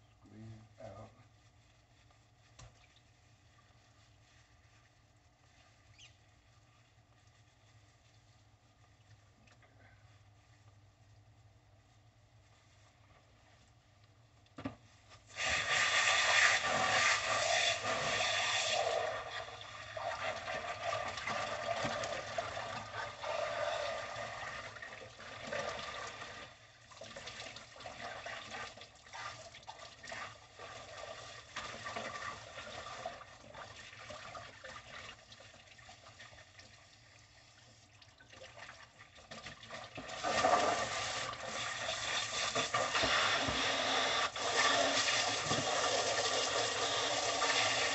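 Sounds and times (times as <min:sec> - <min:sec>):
hose water rushing and splashing: 0:15.3 - 0:35.3, 0:38.4 - 0:47.9.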